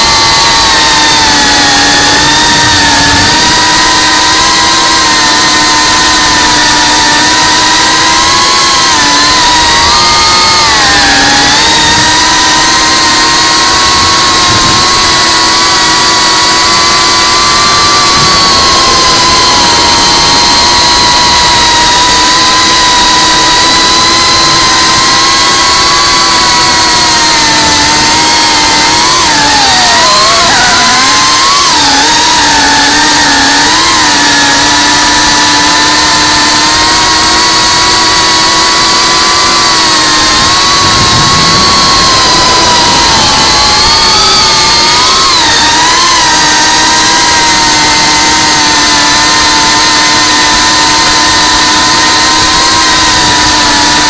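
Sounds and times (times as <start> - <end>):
quadcopter motors whining: 0.0 - 54.0.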